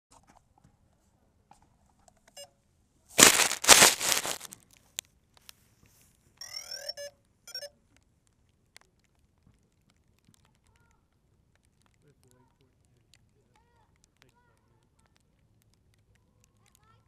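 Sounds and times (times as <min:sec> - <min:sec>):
camera handling rustle: 0:03.2 - 0:04.6.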